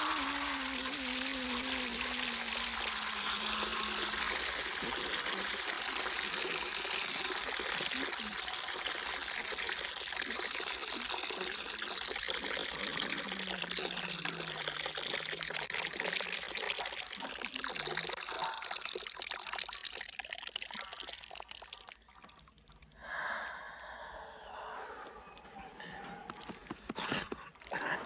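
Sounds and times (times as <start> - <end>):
rushing watery hiss: 0.0 - 9.0.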